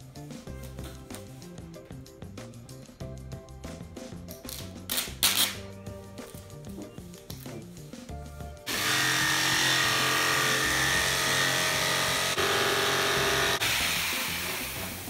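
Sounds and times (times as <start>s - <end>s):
background music: 0.0s - 15.0s
jigsaw cutting: 8.7s - 14.8s.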